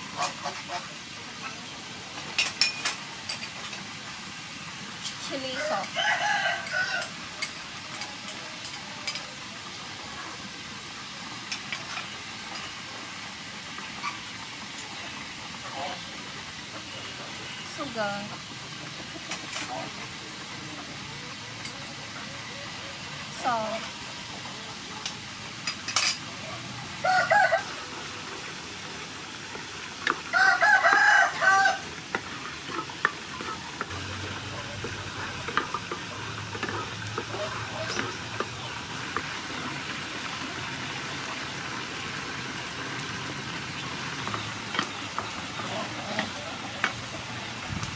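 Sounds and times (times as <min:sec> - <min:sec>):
sauce sizzling in oil: 0:00.0 - 0:47.6
rooster crowing: 0:05.6 - 0:07.2, 0:27.0 - 0:27.9, 0:30.3 - 0:31.9.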